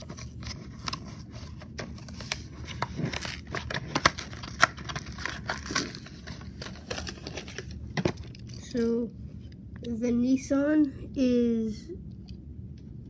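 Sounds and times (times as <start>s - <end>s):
plastic packaging crinkling: 0.0s - 8.9s.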